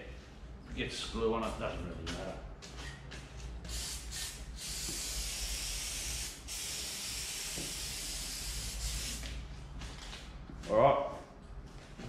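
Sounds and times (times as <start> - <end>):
aerosol can spray hissing: 3.7 - 9.3.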